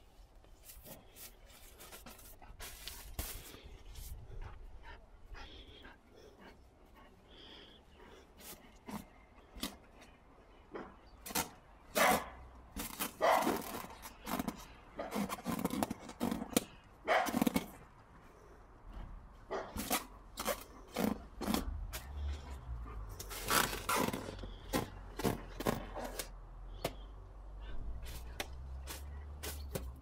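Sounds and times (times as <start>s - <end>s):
dog mouthing rubber balloon: 12.0s - 17.8s.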